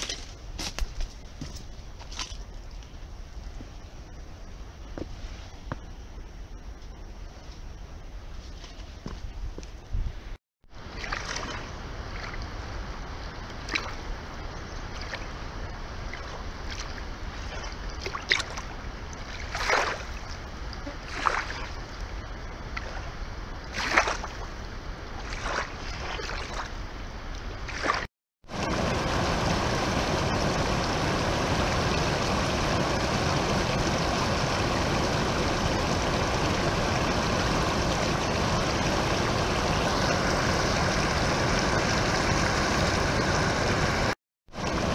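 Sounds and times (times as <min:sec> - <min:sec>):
small waves washing onto bank: 0:10.7 - 0:44.9
wavelets splashing: 0:16.1 - 0:20.2.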